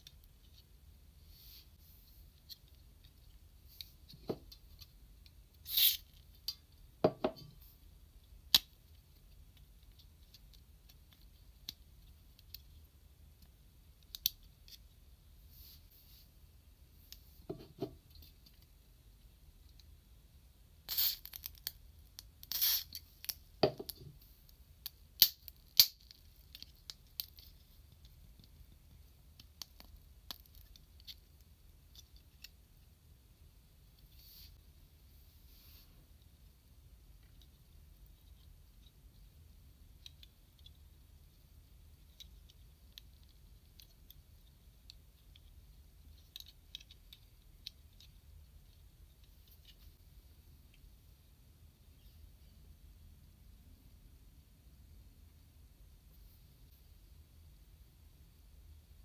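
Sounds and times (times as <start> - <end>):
plastic toy parts clicking: 46.1 - 48.2.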